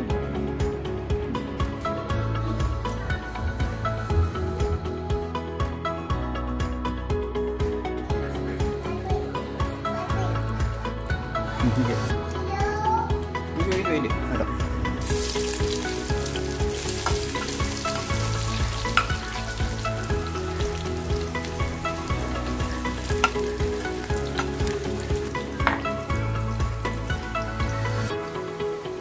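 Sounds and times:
oil popping: 15.0s - 27.2s
onions sizzling in hot oil: 15.0s - 29.0s.

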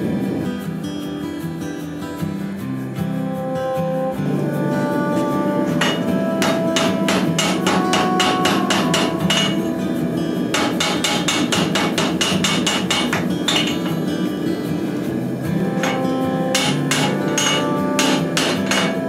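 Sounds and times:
hammer striking hot metal: 5.8s - 9.8s, 10.5s - 14.1s, 15.7s - 19.0s.

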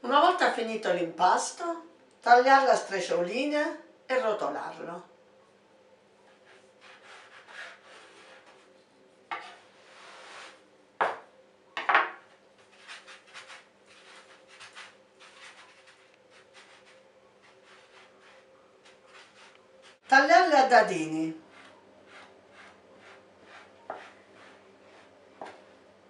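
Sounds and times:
knife cutting dough on wood: 6.4s - 8.7s, 12.6s - 20.0s, 21.5s - 25.6s
knife knocking on wood: 11.0s - 11.2s
hands rolling dough: 12.6s - 20.2s, 21.0s - 25.9s.

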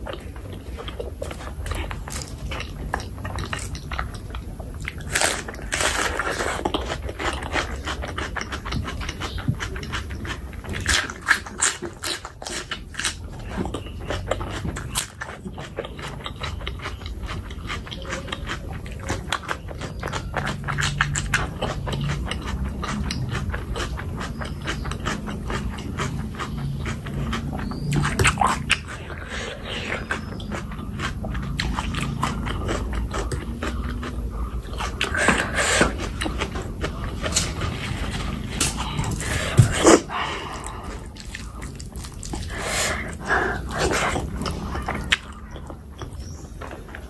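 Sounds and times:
wet chewing and lip-smacking: 0.0s - 47.0s.

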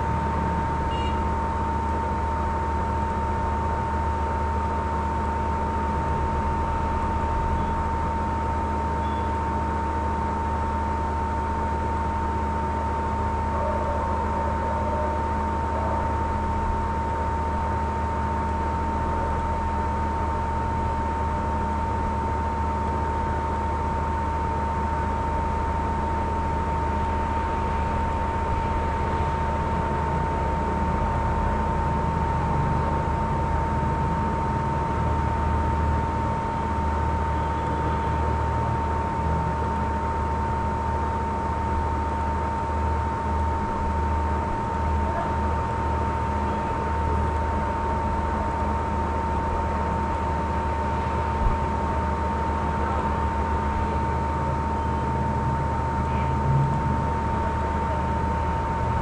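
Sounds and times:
high-pitched whine: 5.7s - 9.8s, 25.1s - 40.0s.

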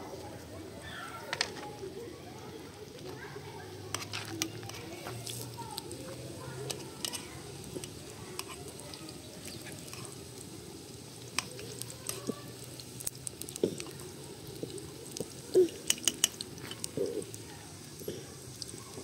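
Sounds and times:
food sizzling in oil: 3.7s - 19.0s
stirring clicks and taps: 3.9s - 10.3s, 11.0s - 19.0s.

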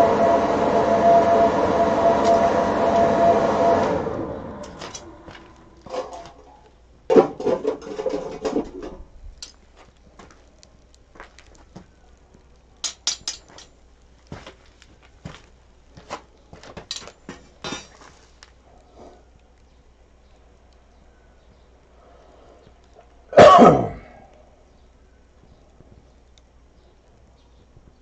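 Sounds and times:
fire crackling and popping: 4.7s - 22.0s, 22.6s - 23.2s, 24.4s - 28.0s.

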